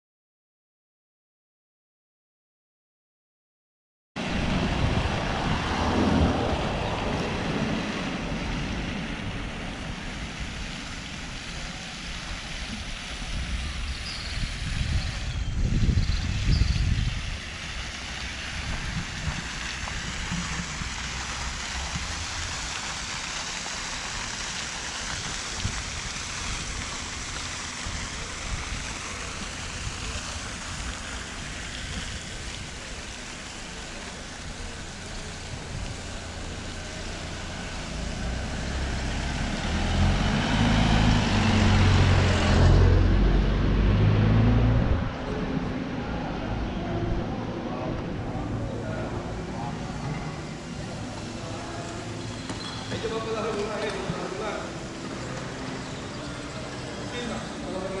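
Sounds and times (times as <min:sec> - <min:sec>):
wind buffeting microphone: 0:04.2 - 0:11.5, 0:12.1 - 0:22.7, 0:25.1 - 0:33.0
outdoor rushing noise: 0:04.2 - 0:58.0.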